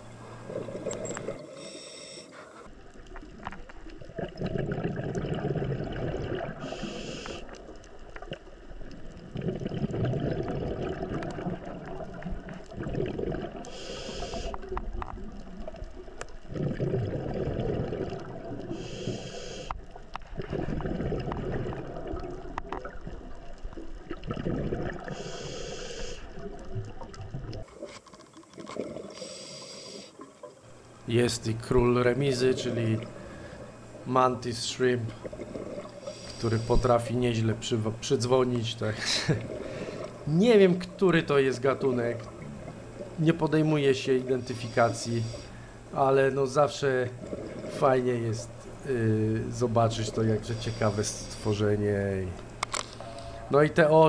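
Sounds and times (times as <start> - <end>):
exhaled bubbles bubbling: 0.0 - 1.7, 2.8 - 29.4, 30.2 - 54.0
regulator inhale hiss: 1.2 - 2.7, 6.6 - 7.6, 13.7 - 14.7, 18.7 - 19.9, 25.1 - 26.4, 29.1 - 30.2, 35.9 - 37.0, 44.6 - 45.9, 50.5 - 51.4.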